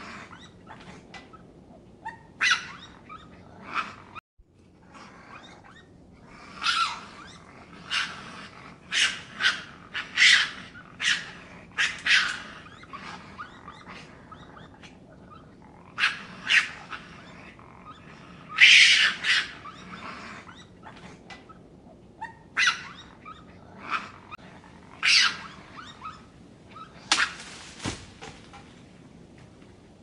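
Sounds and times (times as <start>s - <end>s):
raccoon calling harshly: 8.8s - 17.3s, 18.5s - 20.8s, 22.2s - 24.0s, 25.0s - 27.5s.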